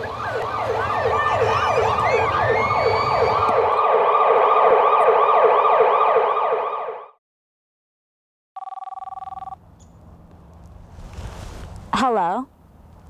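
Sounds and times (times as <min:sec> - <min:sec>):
siren in a fast yelp: 0:00.0 - 0:07.2.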